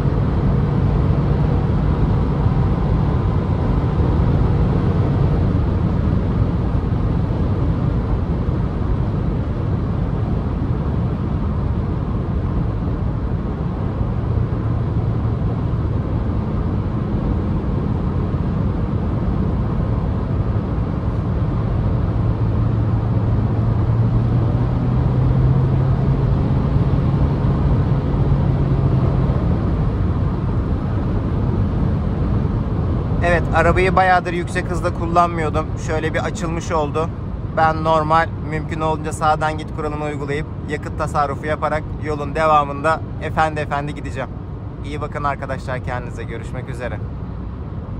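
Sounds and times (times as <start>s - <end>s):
road and wind noise: 0.0s - 47.9s
car engine accelerating: 14.0s - 47.6s.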